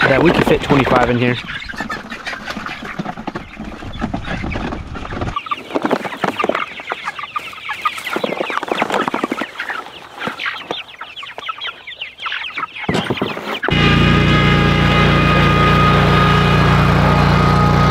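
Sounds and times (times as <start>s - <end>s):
chickens cheeping and clucking: 0.0s - 17.9s
riding mower engine: 13.7s - 17.9s.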